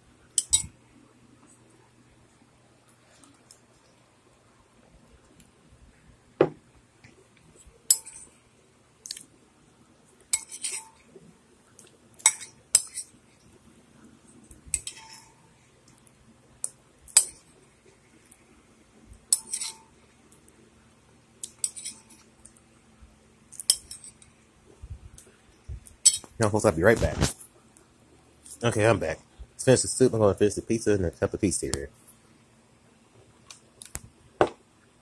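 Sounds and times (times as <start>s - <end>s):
metal spoon clinking against bowl: 0.4s - 0.7s, 7.9s - 8.3s, 10.3s - 11.0s, 12.2s - 13.1s, 14.7s - 15.4s, 19.3s - 19.9s, 23.6s - 24.3s, 26.0s - 26.3s.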